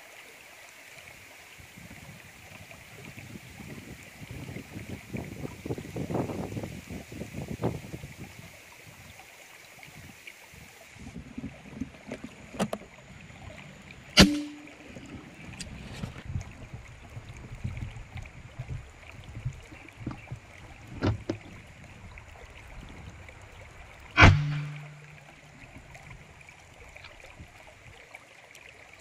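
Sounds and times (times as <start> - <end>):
flowing water: 0.0 - 29.0
air rifle shot: 14.2 - 14.6, 24.2 - 25.0.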